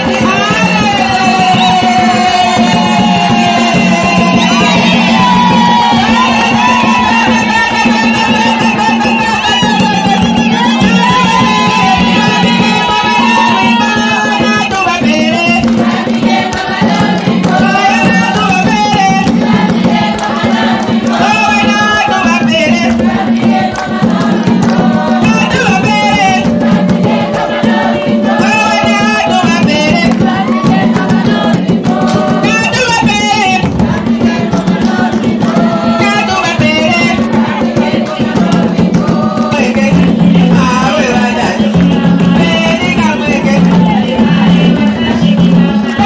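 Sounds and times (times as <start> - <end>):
steady drumming: 0.0 - 46.0
women singing: 0.0 - 46.0.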